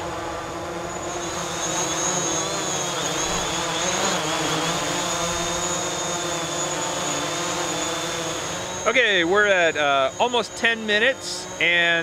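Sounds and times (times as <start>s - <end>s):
drone hovering buzz: 0.0s - 12.0s.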